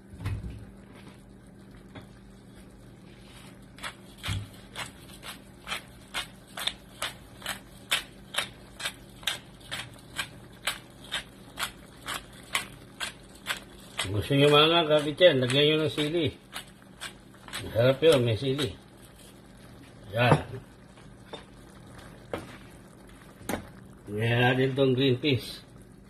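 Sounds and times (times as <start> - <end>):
pepper mill grinding: 3.8 - 19.4.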